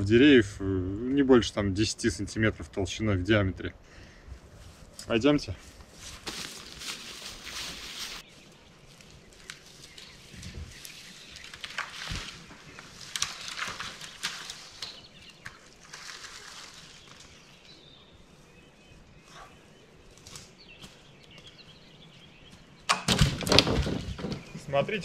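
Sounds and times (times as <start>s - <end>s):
footsteps crunching leaves and twigs: 4.5s - 22.8s.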